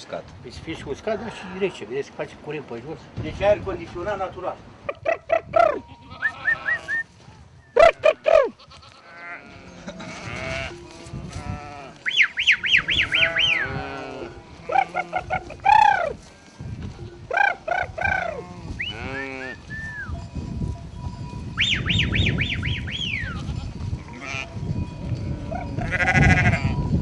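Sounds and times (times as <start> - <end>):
sheep and goats bleating: 1.0 - 1.9, 5.7 - 7.0, 7.8 - 12.0, 13.0 - 16.4, 17.6 - 19.7, 23.0 - 24.6, 25.3 - 26.9
high chirping notes: 12.0 - 13.8, 17.0 - 23.8.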